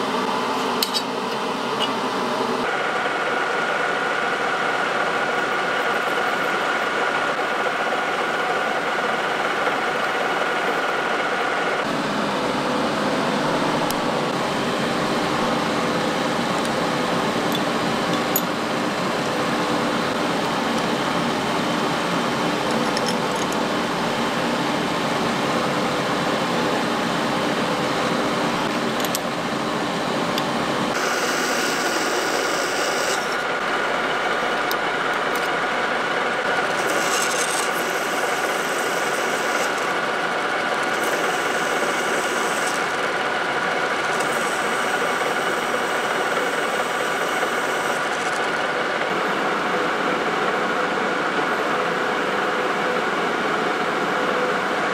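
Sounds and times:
lathe drilling into workpiece: 0:30.9 - 0:48.7.

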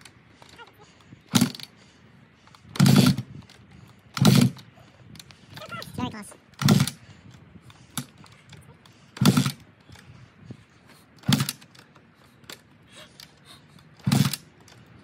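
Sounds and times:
motorcycle engine kick-starting: 0:00.0 - 0:01.7, 0:02.6 - 0:03.5, 0:04.1 - 0:05.7, 0:06.5 - 0:07.1, 0:07.9 - 0:10.0, 0:11.2 - 0:14.9.

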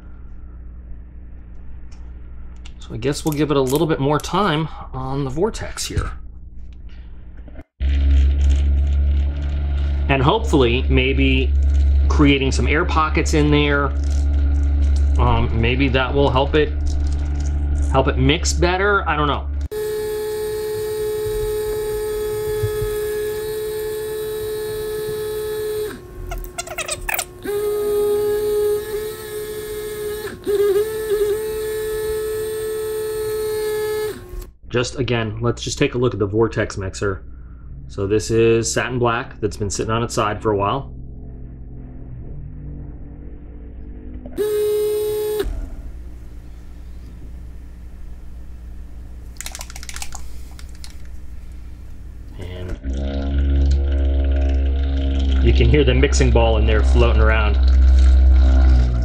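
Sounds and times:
mixer motor humming: 0:07.8 - 0:34.6, 0:44.1 - 0:59.0
mixing ball rattling in bottle: 0:49.3 - 0:51.2.

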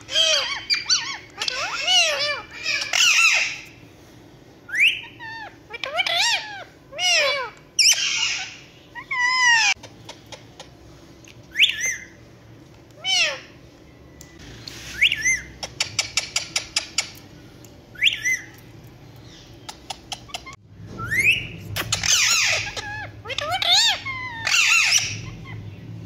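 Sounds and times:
parakeets whistling calls: 0:00.1 - 0:03.8, 0:04.7 - 0:10.4, 0:11.5 - 0:12.2, 0:13.0 - 0:13.6, 0:14.7 - 0:17.2, 0:17.9 - 0:18.6, 0:19.3 - 0:26.0.

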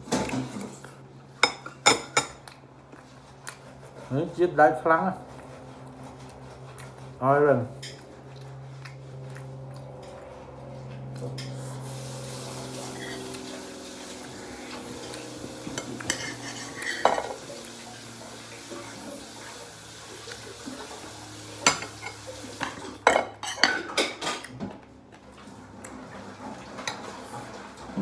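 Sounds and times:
cutlery clinking on ceramic plate: 0:21.7 - 0:24.5.

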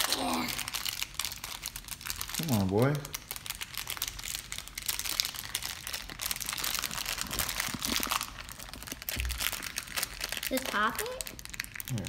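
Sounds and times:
foil pouch crinkling: 0:00.0 - 0:12.0.

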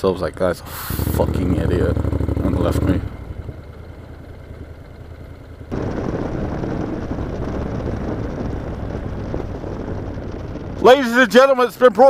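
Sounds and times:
motorcycle engine: 0:00.0 - 0:12.0
wind rumble: 0:00.3 - 0:12.0.

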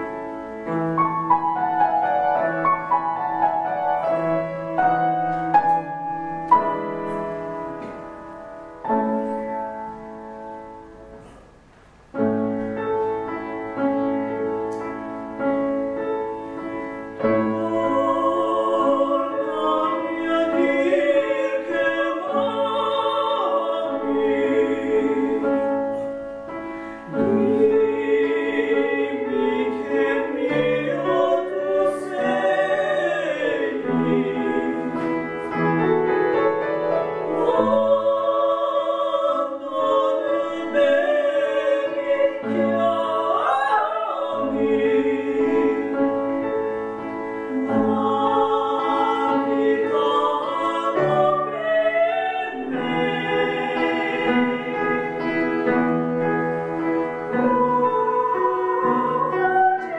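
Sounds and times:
piano chords: 0:00.0 - 0:59.9
operatic singing voice: 0:17.4 - 0:26.0, 0:27.1 - 0:35.5, 0:37.2 - 0:46.4, 0:47.5 - 0:55.3, 0:57.3 - 0:59.9.

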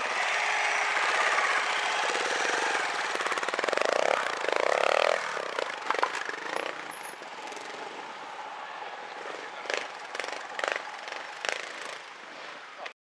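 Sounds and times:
motorcycle engine revving: 0:00.0 - 0:08.4, 0:09.1 - 0:12.5.

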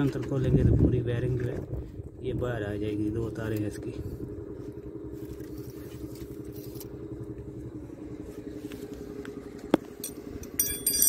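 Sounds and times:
diesel engine idling: 0:00.0 - 0:11.0.

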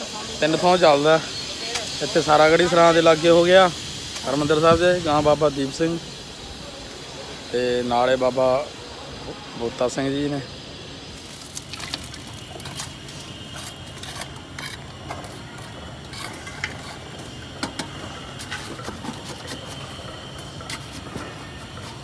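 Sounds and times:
steady hiss: 0:00.0 - 0:22.0.

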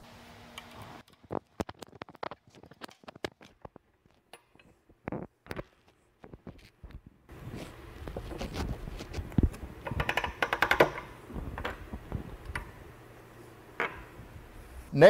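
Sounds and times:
metal coupling clicks and knocks: 0:09.8 - 0:11.8.

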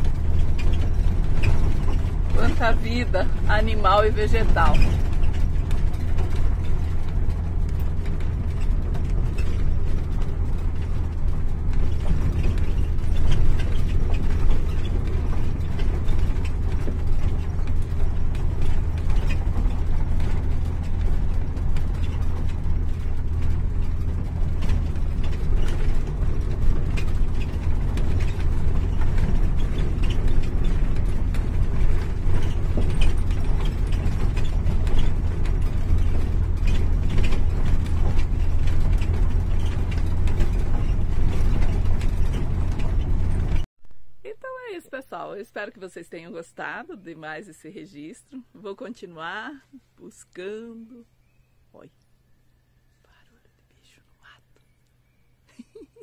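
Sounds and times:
rattling and clicking: 0:00.0 - 0:43.7
engine and road rumble: 0:00.0 - 0:56.0.

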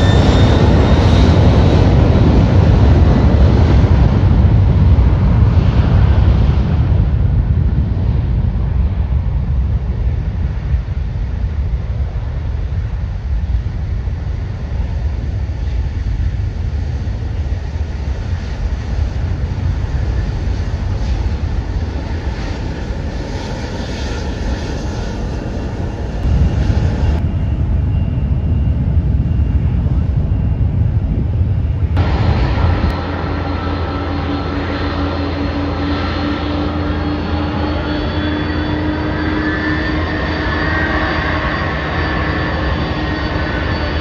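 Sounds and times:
jet engines rumbling at takeoff: 0:00.0 - 0:44.0
thin engine whine: 0:23.6 - 0:44.0.

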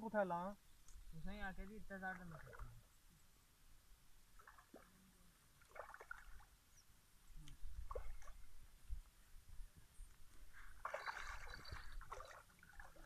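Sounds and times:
faint water splashing: 0:00.8 - 0:03.2, 0:04.1 - 0:09.2, 0:10.1 - 0:13.0.

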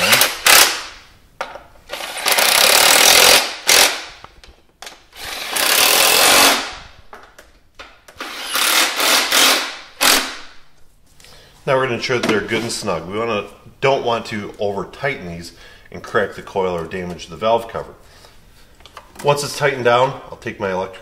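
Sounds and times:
electric impact wrench bursts: 0:00.0 - 0:00.9, 0:01.9 - 0:04.2, 0:05.1 - 0:06.8, 0:08.2 - 0:10.5.

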